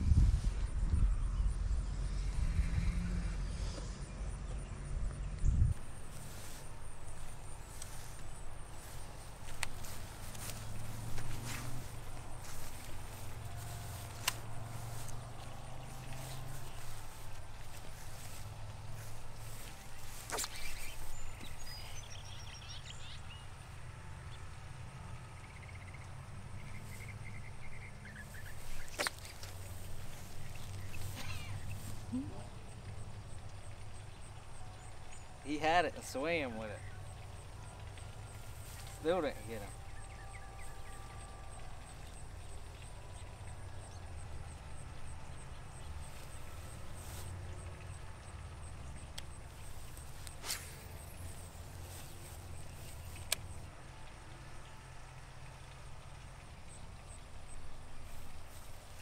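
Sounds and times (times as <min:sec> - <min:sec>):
low rumble: 0:00.0 - 0:20.3
low steady rumble: 0:00.0 - 0:59.0
birds chirping: 0:03.4 - 0:59.0
high insect chirping: 0:05.8 - 0:22.9
short hiss: 0:50.4 - 0:51.0.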